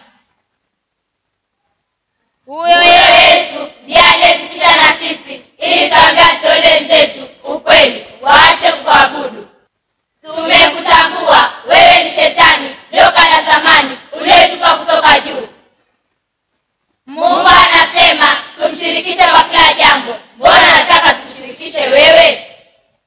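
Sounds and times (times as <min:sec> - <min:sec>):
children singing in unison: 0:02.5 - 0:09.5, 0:10.2 - 0:15.6, 0:17.1 - 0:22.6.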